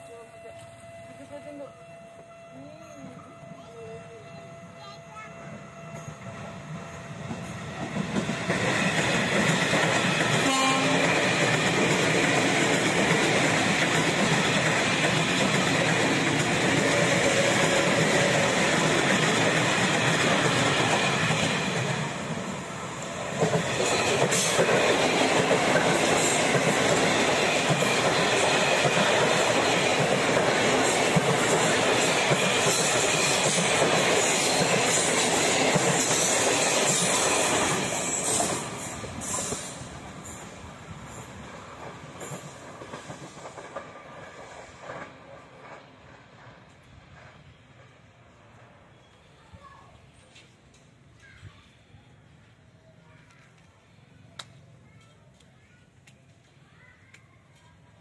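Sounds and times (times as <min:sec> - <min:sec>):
electric trains passing: 0:00.0 - 0:51.2
train horn note: 0:10.3 - 0:11.4.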